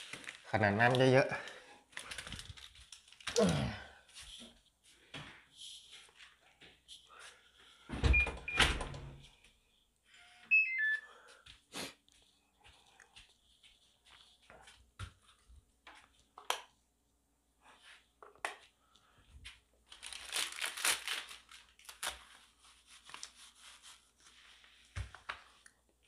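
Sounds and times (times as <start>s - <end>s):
plastic label crinkling and tearing: 0.0s - 3.5s, 19.8s - 24.2s.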